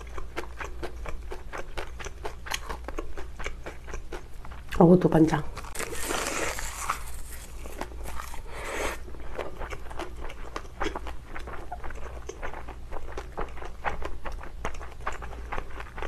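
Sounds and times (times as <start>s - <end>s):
wet chewing: 0.0s - 4.8s, 5.5s - 16.0s
breath hiss: 8.4s - 9.0s.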